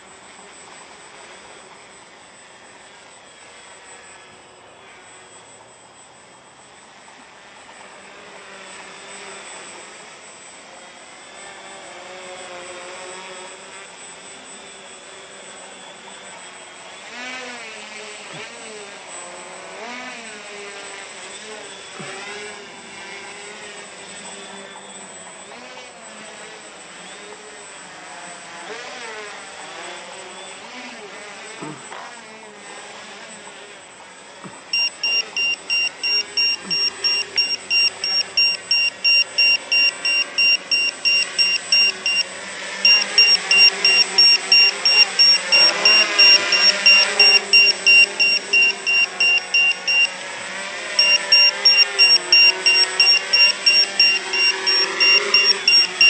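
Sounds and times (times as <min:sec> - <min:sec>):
faint wavering whir: 0:00.0 - 0:56.0
electronic buzzer beeping rapidly: 0:34.6 - 0:56.0.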